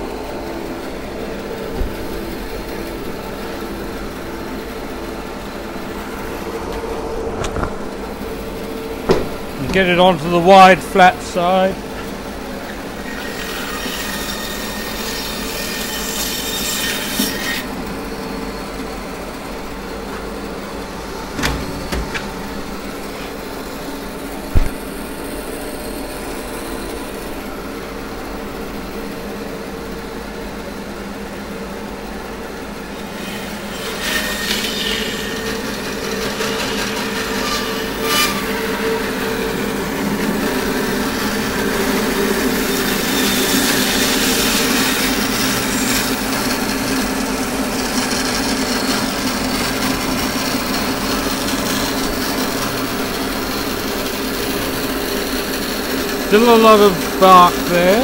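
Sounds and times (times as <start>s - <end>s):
sharp knock: 9.1s - 9.5s, 24.5s - 24.9s
bandsaw cutting wood: 9.4s - 17.9s, 33.2s - 58.0s.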